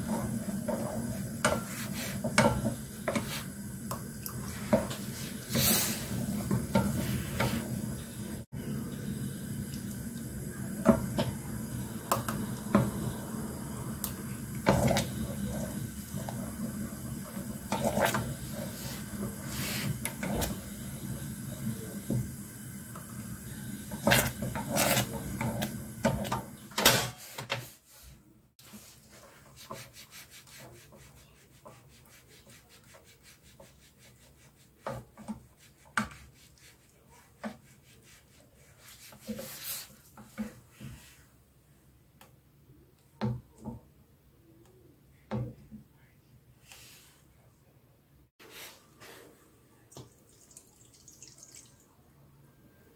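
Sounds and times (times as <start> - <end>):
spatula scraping metal pot: 23.9 - 26.3.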